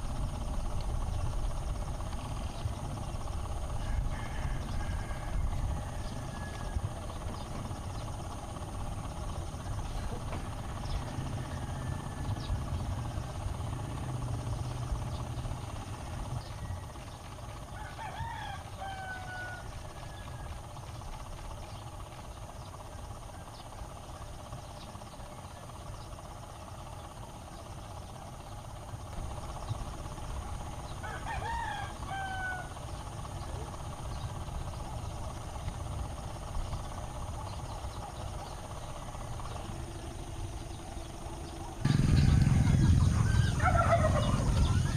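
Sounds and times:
steady low rumble: 0:00.0 - 0:44.9
rooster crowing: 0:03.7 - 0:07.1, 0:10.8 - 0:12.7, 0:17.6 - 0:20.6, 0:31.0 - 0:32.8, 0:41.9 - 0:44.9.

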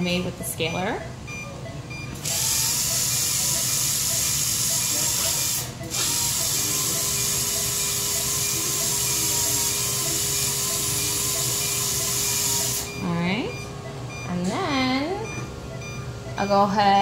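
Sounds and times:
dental polisher hissing: 0:02.2 - 0:12.9.

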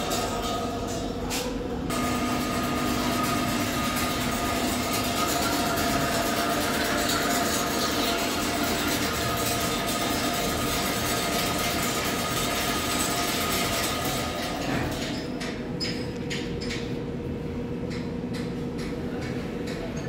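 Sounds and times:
machine mechanical clatter: 0:00.0 - 0:17.0
machine high whine: 0:01.9 - 0:15.3.

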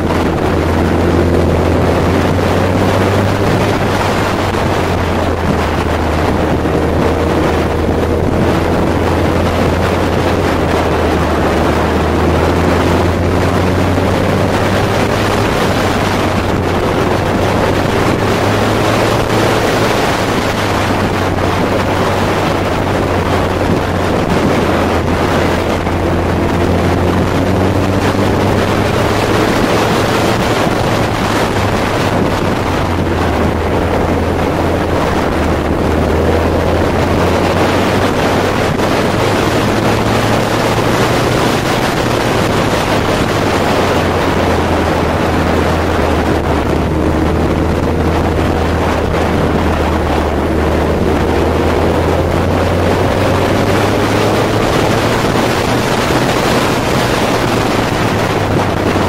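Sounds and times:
motorcycle engine running: 0:00.0 - 0:59.0
wind noise on microphone: 0:00.0 - 0:59.0.

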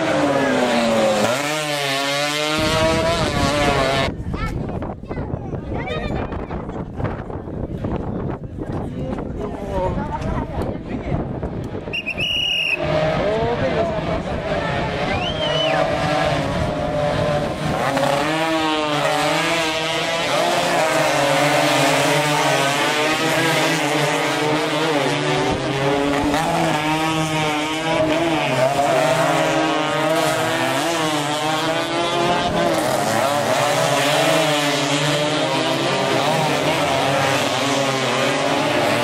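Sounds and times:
racing motorcycles at high revs: 0:00.0 - 0:04.3, 0:12.8 - 0:39.0.

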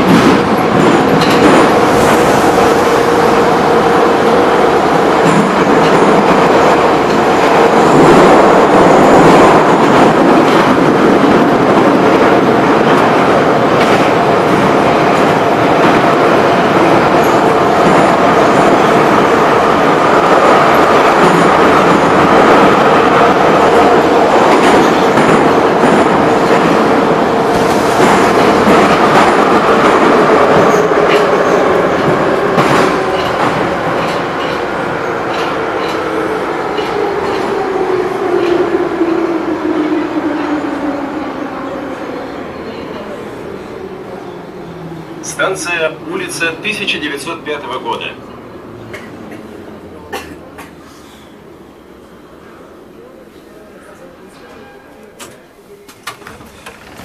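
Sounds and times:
rail-joint clicks: 0:00.0 - 0:01.7, 0:30.6 - 0:34.7, 0:35.3 - 0:36.1, 0:36.7 - 0:37.6, 0:54.4 - 0:57.0
train wheel and track noise: 0:00.0 - 0:57.0.

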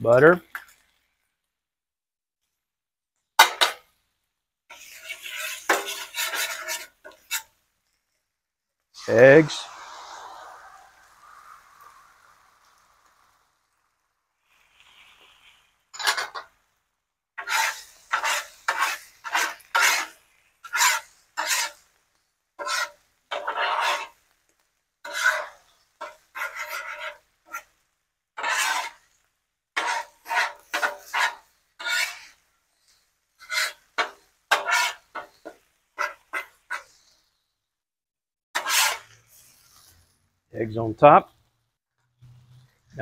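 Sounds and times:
spatula scraping on griddle: 0:04.7 - 0:08.3, 0:09.0 - 0:16.6, 0:17.4 - 0:37.3, 0:38.6 - 0:40.2.

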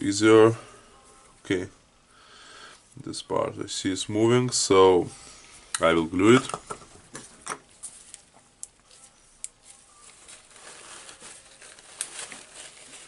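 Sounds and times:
rustling of rags: 0:08.9 - 0:13.0.

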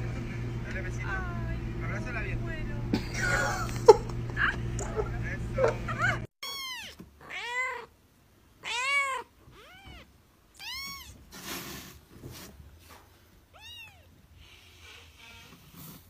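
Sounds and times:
kitten mewing: 0:06.4 - 0:07.9, 0:08.6 - 0:11.2, 0:13.5 - 0:14.1.

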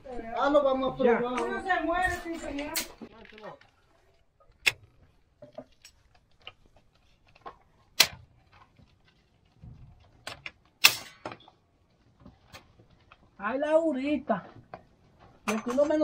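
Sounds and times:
twigs cracking: 0:02.2 - 0:11.2.

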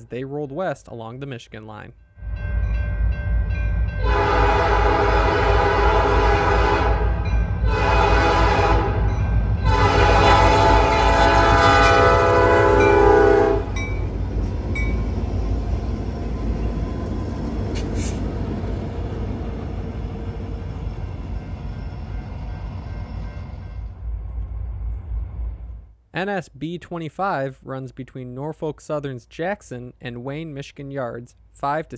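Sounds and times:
locomotive engines and wheels rumbling: 0:02.2 - 0:25.9
locomotive air horn: 0:04.0 - 0:13.8.

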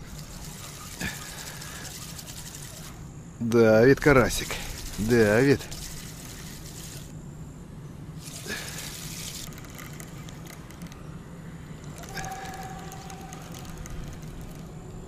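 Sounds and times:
fishing reel winding: 0:00.0 - 0:03.0, 0:04.1 - 0:07.1, 0:08.2 - 0:11.0, 0:11.8 - 0:14.8.

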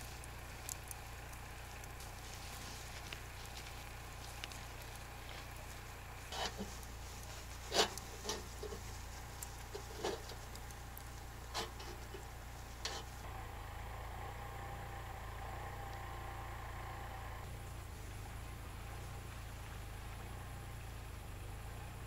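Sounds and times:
charcoal crackles and pops: 0:00.0 - 0:13.3
meat grilling over charcoal: 0:00.0 - 0:13.3
low steady hum: 0:00.0 - 0:22.0.

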